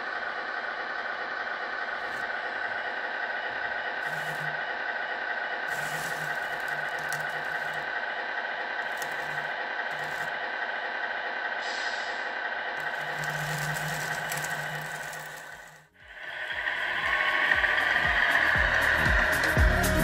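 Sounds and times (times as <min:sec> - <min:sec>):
electric drum drive with gear whine: 0:00.0 - 0:11.6, 0:12.7 - 0:20.0
small motor humming: 0:01.8 - 0:08.1, 0:08.8 - 0:10.5, 0:12.8 - 0:20.0
wet concrete pouring down chute: 0:05.7 - 0:07.8, 0:12.8 - 0:15.8.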